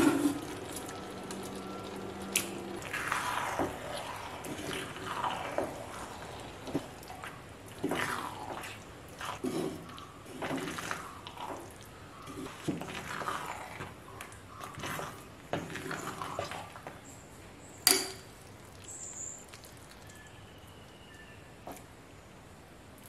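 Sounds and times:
spatula squelching in pot: 2.7 - 17.0.

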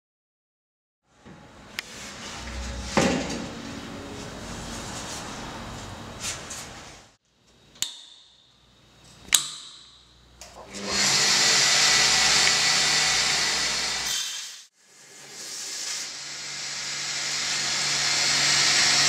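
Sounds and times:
electric core drill motor: 10.7 - 14.4, 15.8 - 19.0.

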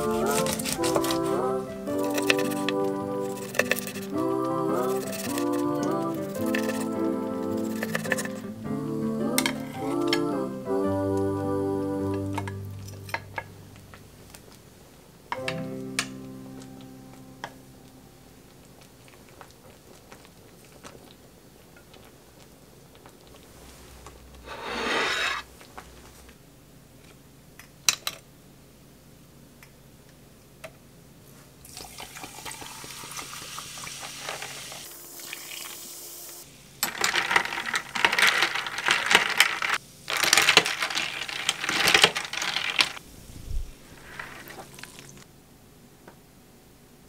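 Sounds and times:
fizzing and crackling ice: 31.6 - 36.1, 36.8 - 43.0, 43.9 - 45.3
sparkling water pouring: 31.6 - 43.0, 43.9 - 45.3.

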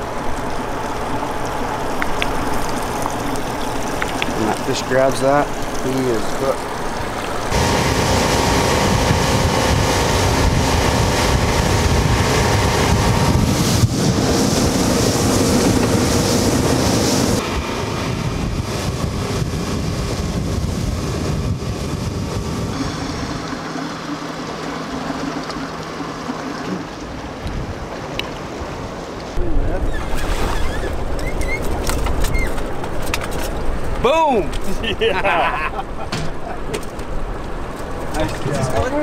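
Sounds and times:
outboard motor drone: 0.0 - 39.0
water rushing past hull: 0.0 - 39.0
wind buffeting microphone: 7.5 - 23.7.

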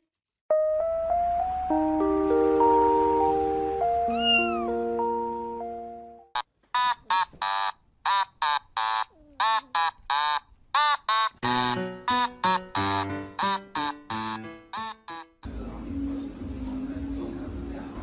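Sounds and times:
music: 0.5 - 6.3, 11.4 - 18.0
high-pitched animal cries: 4.1 - 4.8, 7.0 - 11.3.

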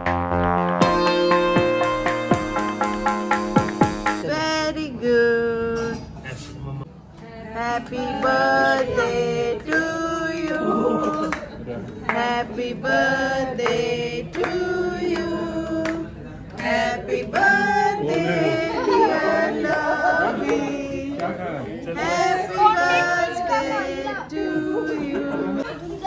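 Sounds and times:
group singing a celebration song: 7.3 - 25.7.

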